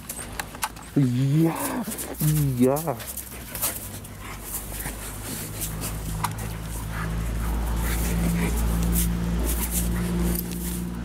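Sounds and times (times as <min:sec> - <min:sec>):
dog fur and harness rustling: 0:00.0 - 0:11.0
low engine hum: 0:00.0 - 0:11.0.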